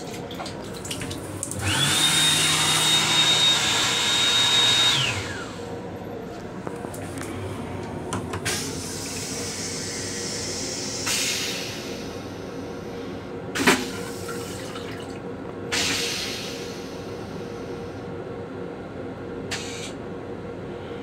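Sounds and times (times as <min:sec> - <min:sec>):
toilet flushing: 0:00.0 - 0:05.6, 0:07.0 - 0:12.4, 0:13.6 - 0:17.5
train hum: 0:04.9 - 0:21.0.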